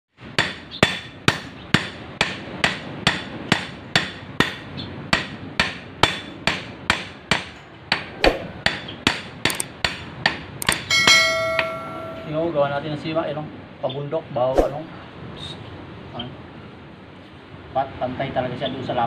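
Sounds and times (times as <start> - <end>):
hammer striking metal strip: 5.2 - 12.3.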